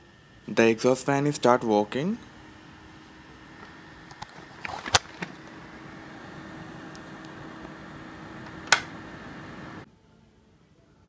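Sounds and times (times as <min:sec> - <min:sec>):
fan whirring: 0:00.0 - 0:09.9
clicks: 0:03.6 - 0:05.7, 0:06.8 - 0:07.8, 0:08.4 - 0:09.1.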